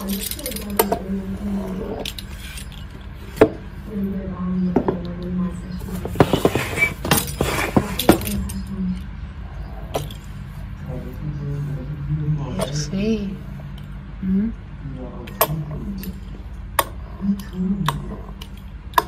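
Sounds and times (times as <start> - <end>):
utensils and dishes clinking: 0.0 - 3.5, 5.8 - 9.0.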